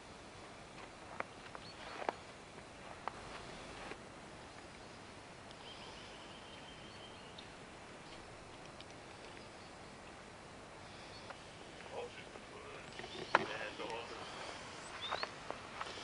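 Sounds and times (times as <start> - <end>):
steady hiss: 0.0 - 16.0
faint ticks: 5.4 - 5.7, 7.4 - 9.5.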